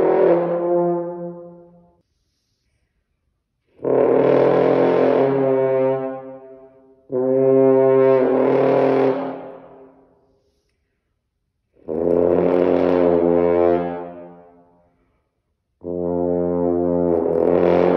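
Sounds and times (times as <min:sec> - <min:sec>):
french horn long notes: 0:00.0 - 0:02.0, 0:03.7 - 0:09.9, 0:11.8 - 0:14.7, 0:15.8 - 0:17.9.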